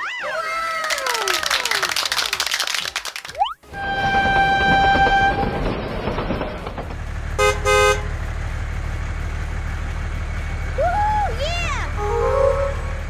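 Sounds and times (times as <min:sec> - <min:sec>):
toy train horn toots: 0:03.7 - 0:05.6, 0:07.4 - 0:08.1, 0:11.9 - 0:13.0
low engine drone: 0:03.7 - 0:13.0
sliding whistle-like sound: 0:12.0 - 0:13.0.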